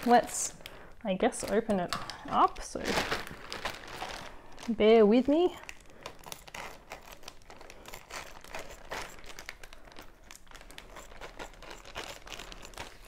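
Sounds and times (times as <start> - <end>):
plastic bag crinkling: 0.0 - 13.0
scissors cutting plastic: 5.6 - 13.0.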